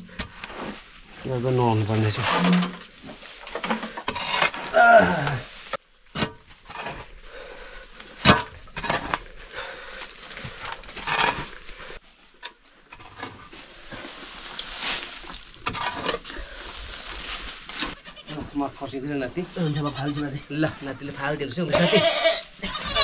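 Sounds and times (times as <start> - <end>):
movement noise: 0.0 - 21.7.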